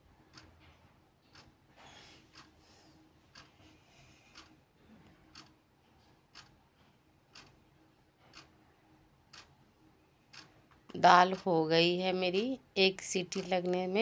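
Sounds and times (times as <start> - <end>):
clock ticking: 0.2 - 1.6, 2.3 - 2.6, 3.3 - 3.5, 4.3 - 4.6, 5.2 - 5.6, 6.3 - 6.6, 7.3 - 7.6, 8.2 - 8.6, 9.3 - 9.6, 10.3 - 14.0.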